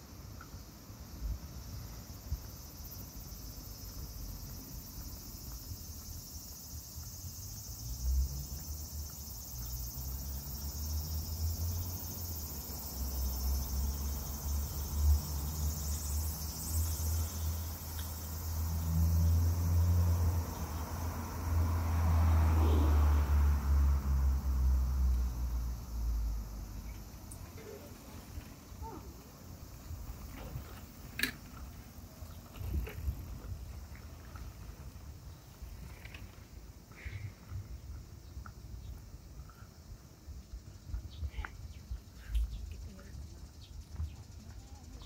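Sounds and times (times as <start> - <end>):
cicadas singing: 0.0 - 45.0.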